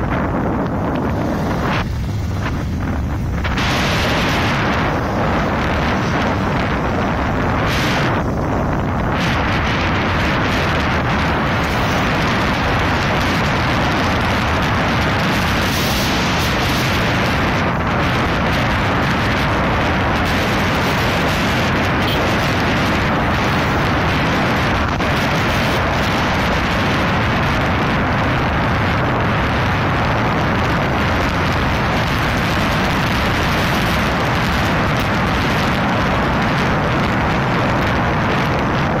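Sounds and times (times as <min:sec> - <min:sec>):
motorcycle engine running: 0:00.0 - 0:39.0
wind buffeting microphone: 0:00.0 - 0:39.0.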